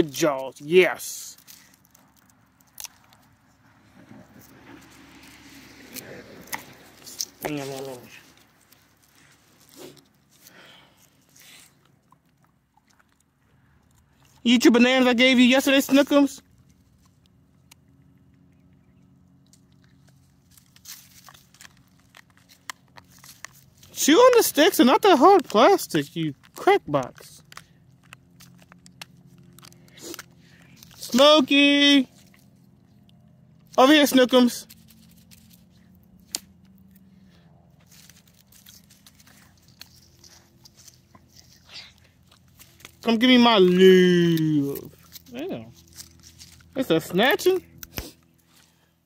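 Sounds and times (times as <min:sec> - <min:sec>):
rustling of dry grass and leaves: 0:00.0 - 0:18.2, 0:19.1 - 0:49.0
dog chewing something hard: 0:16.6 - 0:24.0, 0:34.8 - 0:43.1.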